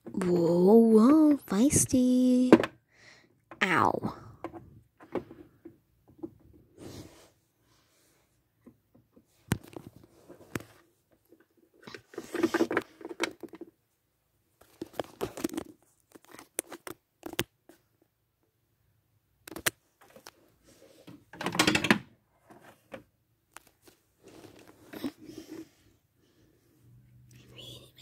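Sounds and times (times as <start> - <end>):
plastic toys rustling: 9.2 - 13.8, 14.6 - 17.8.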